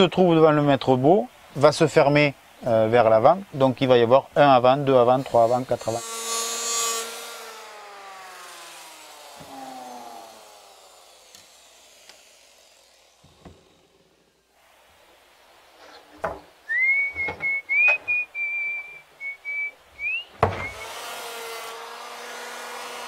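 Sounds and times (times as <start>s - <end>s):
power tool motor spinning down: 6.0s - 14.3s, 20.6s - 21.5s
timber knocking on workbench: 16.2s - 16.5s, 20.4s - 20.8s
person whistling a tune: 16.7s - 20.9s.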